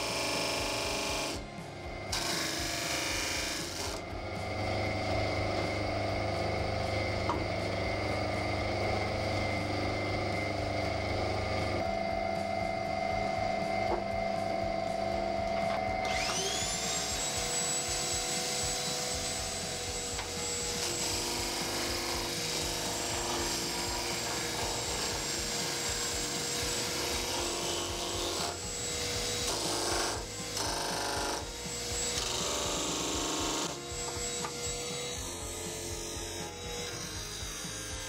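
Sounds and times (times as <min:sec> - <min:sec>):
vacuum cleaner whine: 0:00.0 - 0:38.0
wood rasping on sanding disc: 0:16.1 - 0:38.0.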